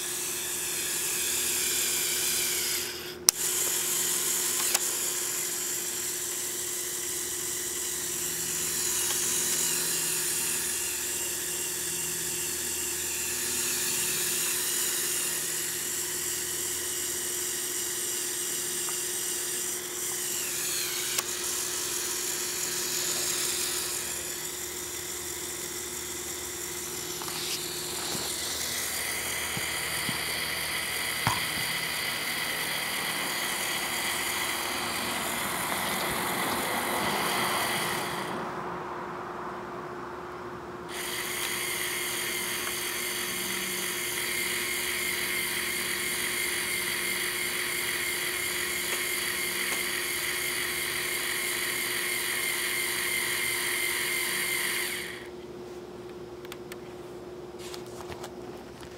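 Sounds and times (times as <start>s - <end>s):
toy electric motor and gears whining: 0.0s - 38.5s, 40.9s - 55.4s
small clicks: 4.5s - 5.0s.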